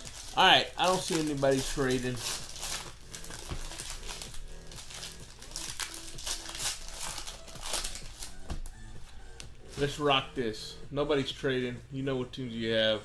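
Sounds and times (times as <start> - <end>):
wrappers crinkling: 0.0 - 8.7.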